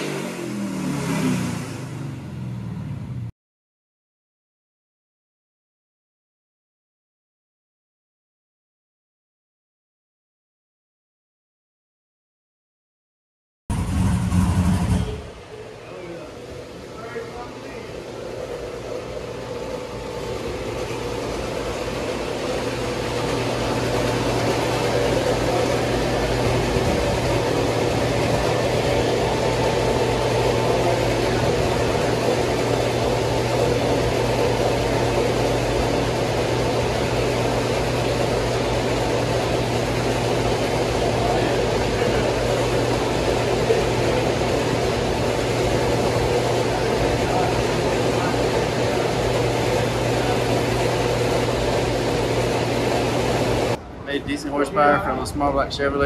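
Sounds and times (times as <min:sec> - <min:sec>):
machinery roar: 0:00.0 - 0:03.3, 0:13.7 - 0:56.0
low hum: 0:13.7 - 0:56.0.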